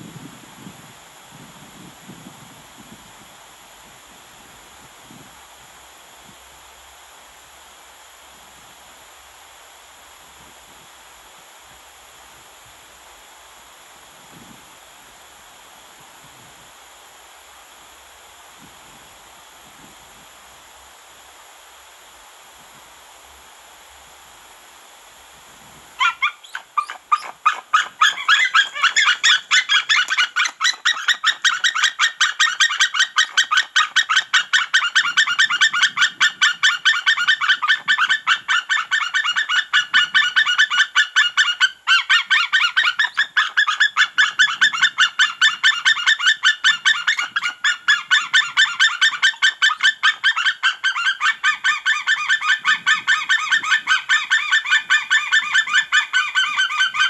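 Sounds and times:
eagles calling: 26.0 - 57.0.

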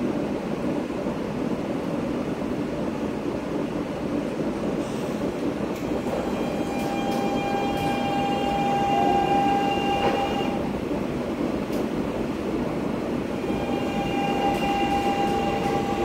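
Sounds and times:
train rolling rumble: 0.0 - 16.0
high squeal of train wheels: 4.8 - 10.7, 13.3 - 16.0.

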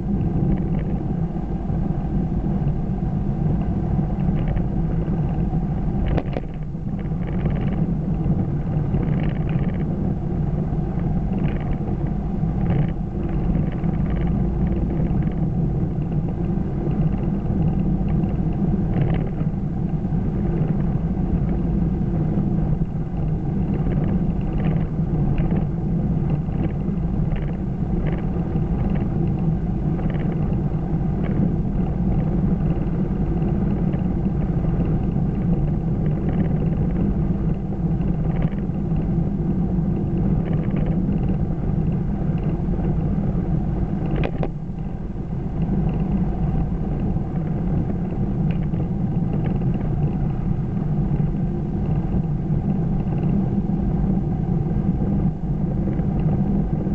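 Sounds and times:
car cabin drone: 0.0 - 56.9.

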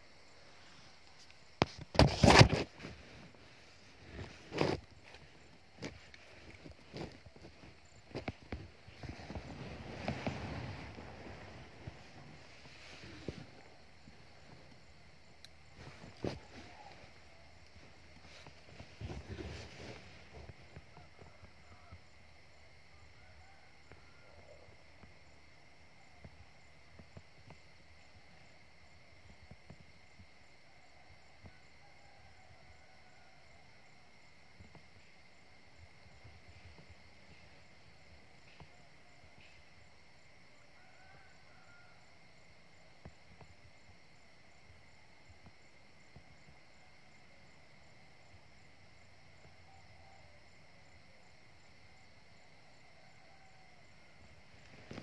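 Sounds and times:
pulsed insect chirp: 0.0 - 55.0.

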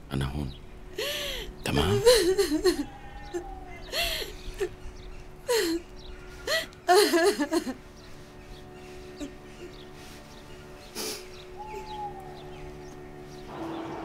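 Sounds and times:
woman sobbing: 1.0 - 7.9, 9.1 - 10.1.

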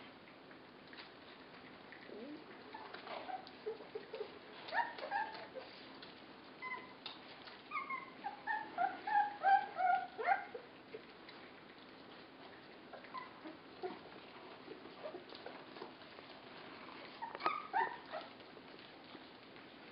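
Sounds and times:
faint eating clicks: 0.2 - 6.2, 10.6 - 19.9
puppies whimpering and yipping: 2.1 - 19.5.

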